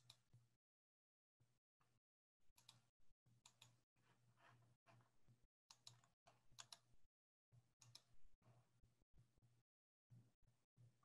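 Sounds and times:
keyboard and mouse clicks: 5.7 - 6.9, 7.8 - 8.1.

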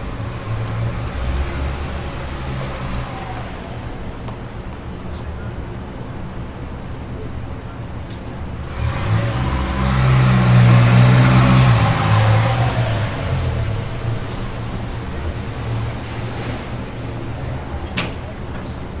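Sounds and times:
traffic hum: 0.0 - 19.0
vehicle passing close by: 8.7 - 16.6.

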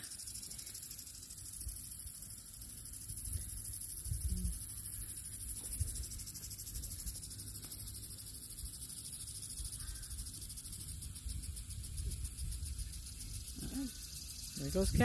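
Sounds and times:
insects chirring: 0.0 - 15.0
wind on microphone: 4.0 - 4.6, 11.2 - 13.8, 14.6 - 15.0.

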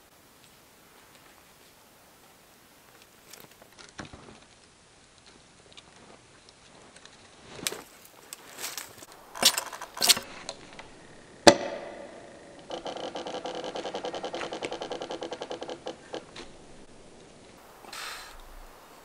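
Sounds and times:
branches snapping: 2.9 - 18.8
wood creaking: 6.8 - 19.0
hatchet striking tree trunk: 11.4 - 12.8.

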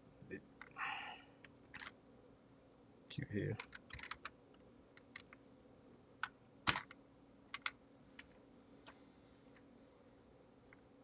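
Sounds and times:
faint low hum: 0.0 - 11.0
computer keyboard typing: 1.7 - 1.9, 3.6 - 4.4, 6.2 - 8.3.

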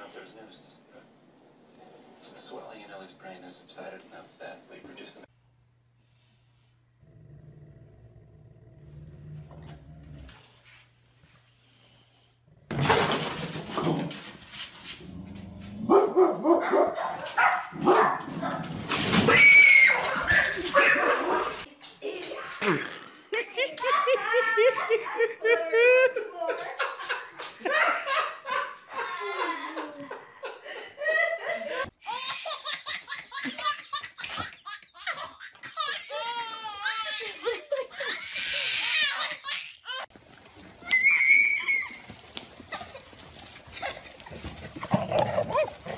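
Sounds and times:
dog growling: 7.0 - 10.6, 43.8 - 45.9
dog barking and yipping: 15.9 - 18.7, 19.7 - 21.7, 43.7 - 45.9
babies laughing: 19.8 - 40.1, 40.9 - 45.9
laughter: 22.6 - 36.0, 37.2 - 38.4.

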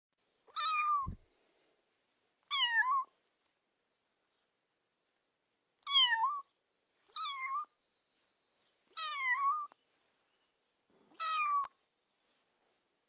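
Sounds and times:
kitten meowing: 0.5 - 1.2, 2.5 - 3.1, 5.8 - 6.5, 7.1 - 7.7, 9.0 - 9.7, 11.1 - 11.7.

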